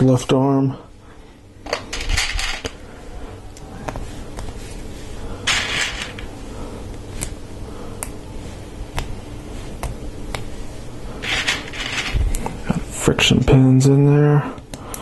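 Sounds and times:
plastic parts rustling: 1.7 - 2.8, 5.4 - 6.3, 11.2 - 12.3.

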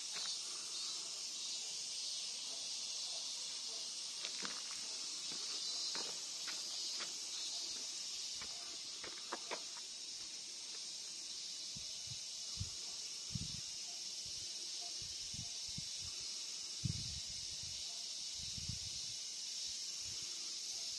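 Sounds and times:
insects droning: 0.0 - 20.9
footsteps on path: 4.2 - 10.8.

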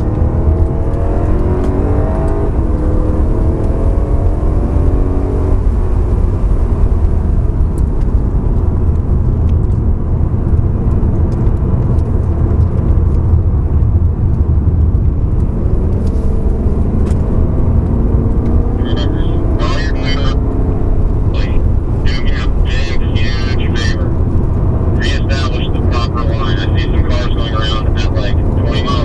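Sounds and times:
car engine revving: 0.0 - 29.0
road and wind noise: 0.0 - 29.0.

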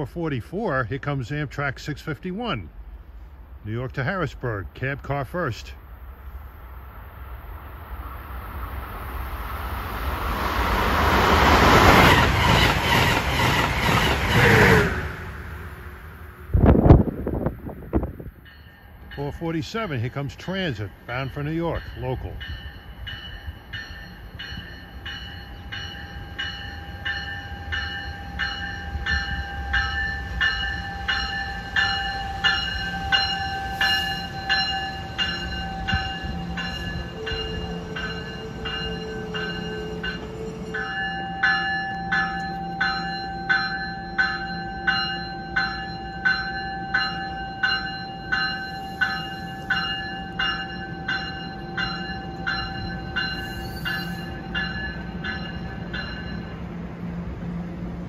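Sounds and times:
train rumble: 0.0 - 58.0
train bell ringing: 18.4 - 56.8.

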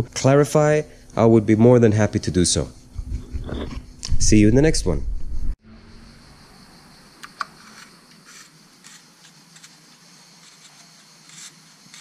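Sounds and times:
soft ticks and scrapes: 7.6 - 12.0.

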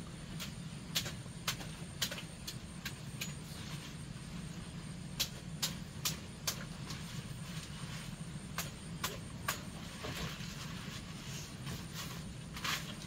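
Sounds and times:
steady low hum: 0.0 - 13.0
sharp pops from fire: 0.3 - 3.5, 5.0 - 7.1, 8.4 - 9.8.

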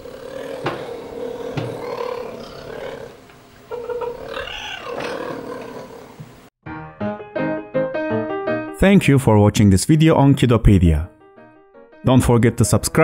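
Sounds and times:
cheetahs growling: 0.0 - 6.4.

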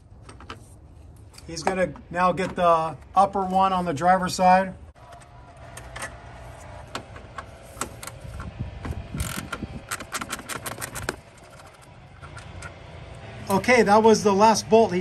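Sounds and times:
ratchet clicking: 9.2 - 12.4.

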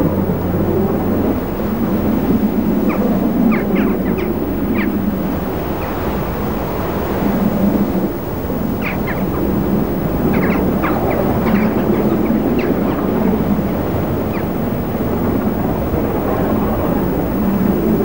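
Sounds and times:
wind noise on microphone: 0.0 - 18.0
bird chirps: 2.8 - 5.0, 8.7 - 9.5, 10.1 - 13.4, 14.2 - 14.6.

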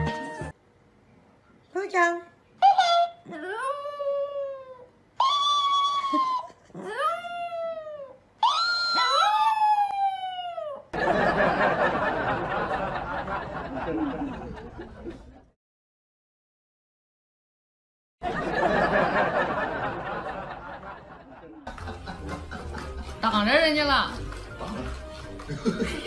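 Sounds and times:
dog howling: 3.3 - 10.9.

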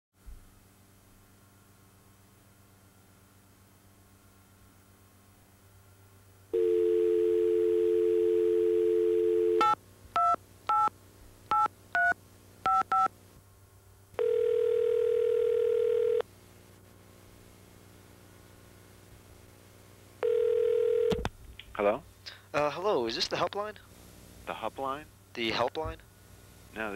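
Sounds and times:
telephone dial tone: 6.6 - 9.8, 14.2 - 16.2, 20.2 - 21.2
telephone ringing tone: 6.6 - 9.8, 14.2 - 16.2, 20.2 - 21.2.

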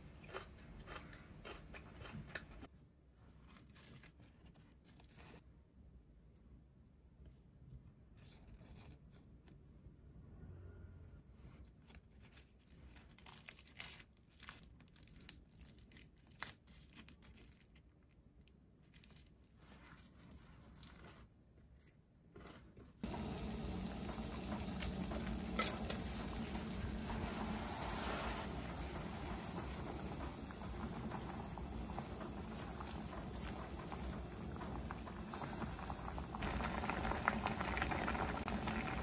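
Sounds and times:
water at a rolling boil: 23.0 - 39.0.

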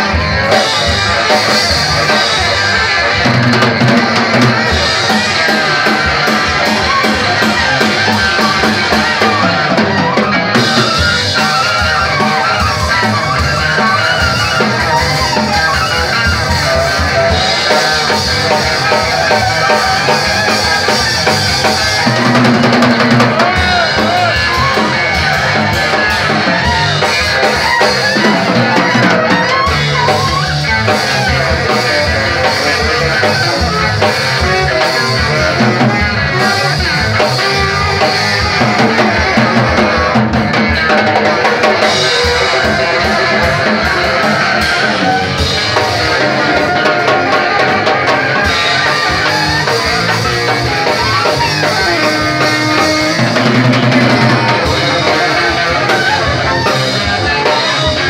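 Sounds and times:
drum kit with cymbals: 0.0 - 58.0
tenor saxophone: 41.6 - 58.0.

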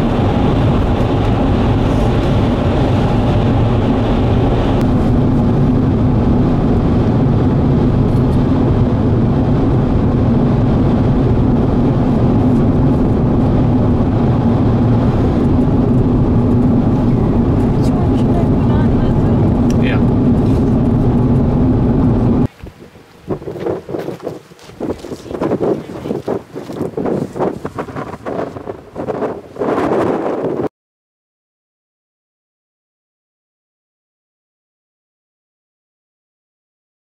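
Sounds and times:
vehicle engine and road noise: 0.0 - 30.7.

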